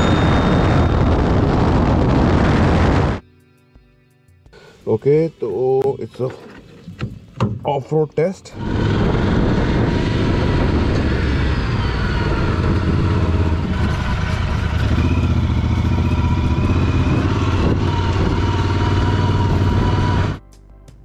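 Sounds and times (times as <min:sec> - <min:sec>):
motorcycle engine running: 0:08.6 - 0:20.4.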